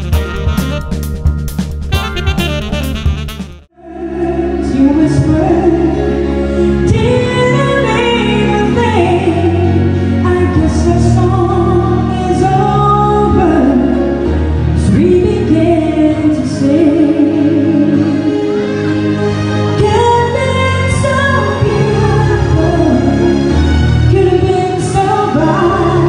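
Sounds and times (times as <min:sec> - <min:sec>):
instrumental accompaniment: 0:00.0 - 0:03.7
person singing into microphone: 0:03.8 - 0:18.8, 0:19.8 - 0:23.3, 0:24.1 - 0:26.0.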